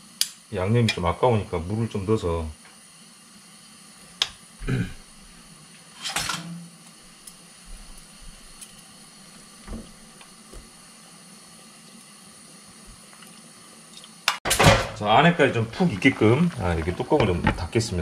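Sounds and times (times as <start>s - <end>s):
chicken simmering in a frying pan: 15.0s - 18.0s.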